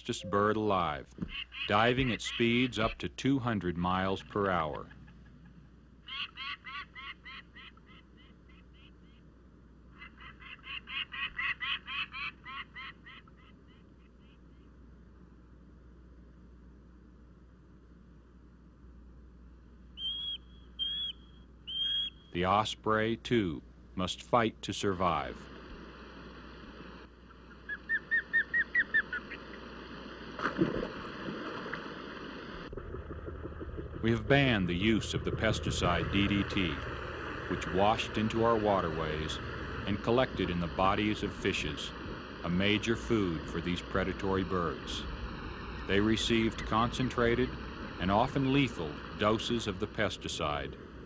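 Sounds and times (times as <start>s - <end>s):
bird whistled calls: 20.0s - 22.3s, 27.7s - 29.4s
splash in water: 30.4s - 31.9s.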